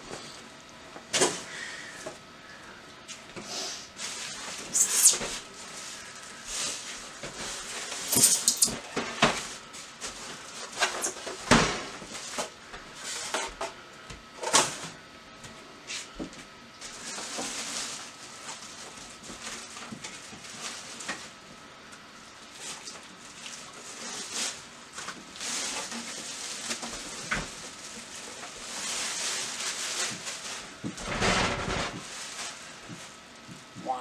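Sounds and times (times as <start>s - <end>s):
styrofoam squeaking: 4.7s - 5.4s, 8.0s - 8.8s.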